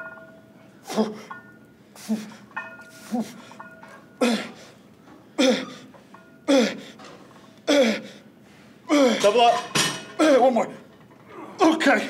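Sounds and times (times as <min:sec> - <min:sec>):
man grunting: 0:08.9 - 0:09.2.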